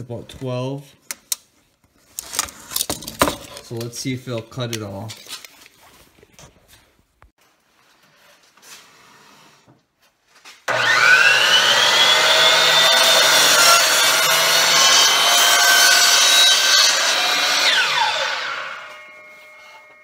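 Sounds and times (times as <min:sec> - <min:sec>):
miter saw cutting plywood: 0:10.7 - 0:20.0.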